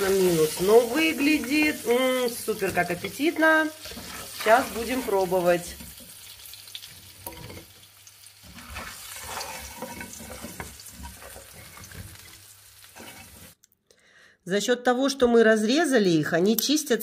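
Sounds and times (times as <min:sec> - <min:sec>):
oil sizzling in frying pan: 0:00.0 - 0:13.6.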